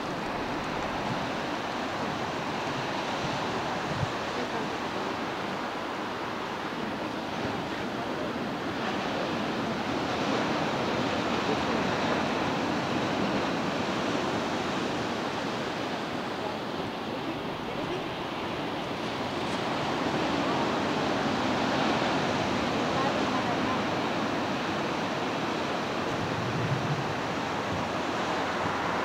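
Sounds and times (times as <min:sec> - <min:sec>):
waterfall rushing: 0:00.0 - 0:07.1, 0:15.6 - 0:29.0.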